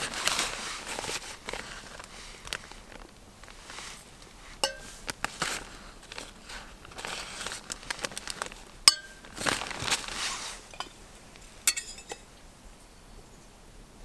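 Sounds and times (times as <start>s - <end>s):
plastic food bag crinkling: 0.0s - 11.1s
spoon clinking against metal mug: 4.6s - 4.9s, 8.9s - 9.2s, 11.7s - 12.2s.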